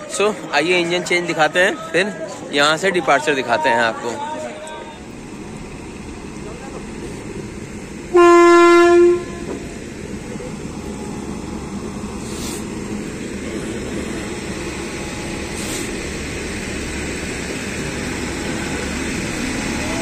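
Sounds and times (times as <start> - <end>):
locomotive rumbling hum: 0.0 - 20.0
locomotive horn: 8.1 - 9.8.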